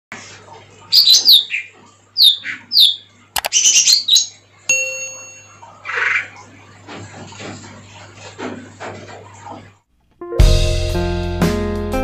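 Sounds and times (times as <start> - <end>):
bird whistling calls: 0.9 - 4.4
sharp click: 3.4 - 3.6
ringing ding: 4.7 - 5.7.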